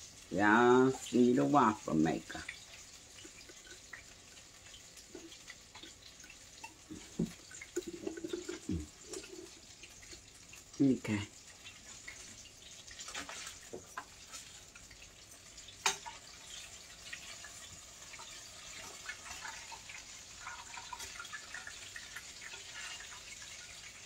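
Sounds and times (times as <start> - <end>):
chicken frying in hot oil: 0.0 - 24.0.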